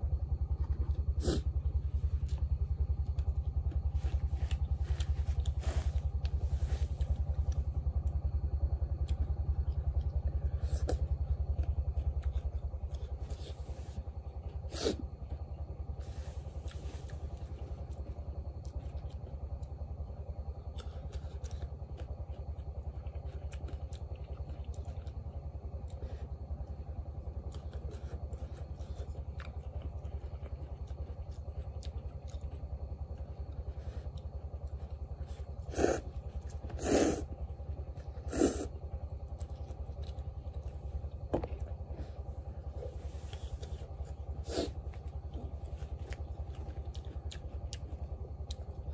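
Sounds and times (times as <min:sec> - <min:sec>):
small engine running: 0:00.0 - 0:48.9
slurping noodles: 0:36.7 - 0:37.3, 0:38.2 - 0:38.7.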